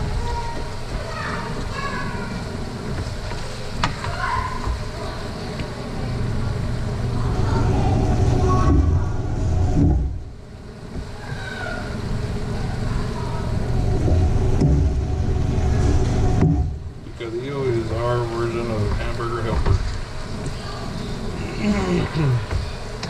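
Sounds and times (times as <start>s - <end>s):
low rumble: 6.0s - 10.9s, 12.0s - 18.4s.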